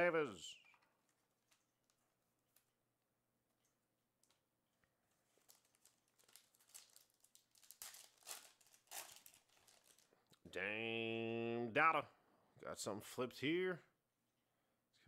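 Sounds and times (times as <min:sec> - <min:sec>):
foil wrapper crinkling: 0:05.1 - 0:10.3
foil wrapper tearing: 0:05.3 - 0:10.2.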